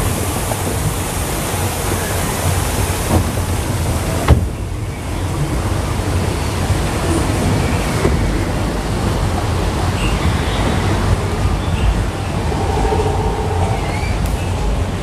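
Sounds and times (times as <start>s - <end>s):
water rushing in flume: 0.0s - 15.0s
wind noise on microphone: 0.0s - 15.0s.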